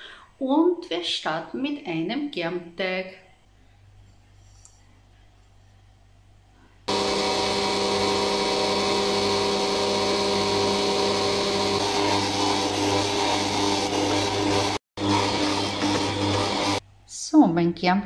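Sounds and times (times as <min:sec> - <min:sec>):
stand mixer motor whining: 0:06.9 - 0:16.8.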